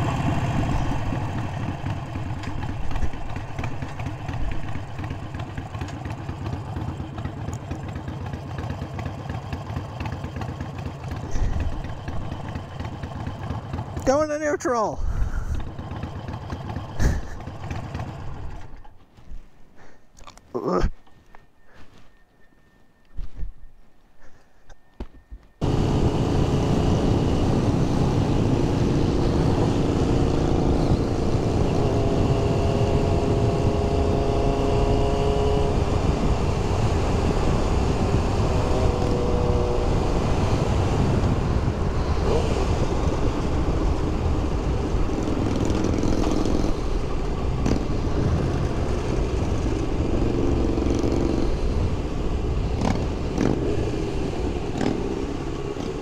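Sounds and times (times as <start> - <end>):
motorcycle engine running: 0.0 - 19.0, 24.8 - 56.0
wind on microphone: 25.9 - 54.3.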